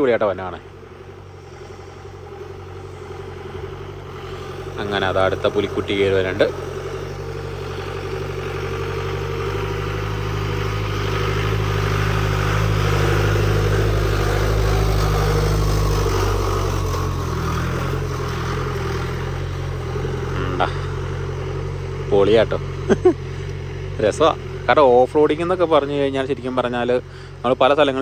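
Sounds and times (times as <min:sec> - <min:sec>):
jeep engine pulling hard uphill: 0:00.0 - 0:28.0.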